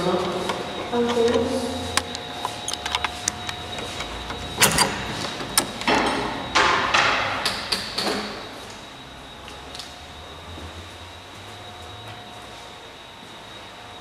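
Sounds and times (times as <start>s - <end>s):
door scraping and rustling: 0.3s - 6.3s
door knocks and clicks: 2.7s - 8.2s.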